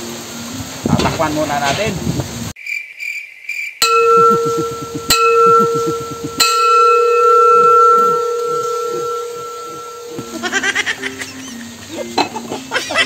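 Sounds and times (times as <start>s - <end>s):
spoon striking metal pot lid: 3.8s - 10.5s.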